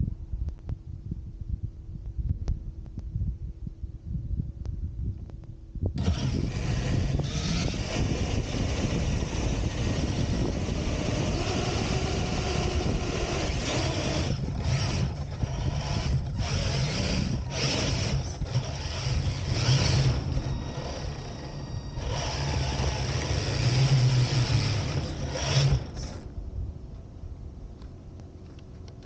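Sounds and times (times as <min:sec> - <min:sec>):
radio-controlled truck running: 0:06.0 - 0:26.3.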